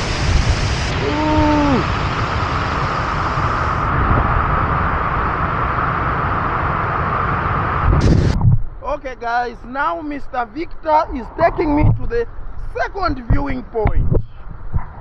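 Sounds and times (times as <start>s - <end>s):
waterfall rushing: 0.0s - 3.8s.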